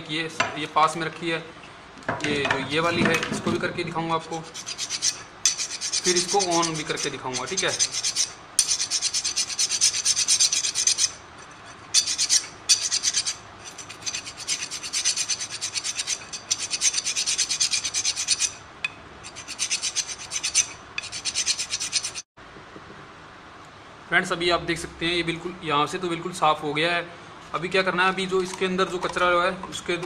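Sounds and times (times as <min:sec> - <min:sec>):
file scraping on metal: 0:04.2 - 0:18.6, 0:19.2 - 0:22.2.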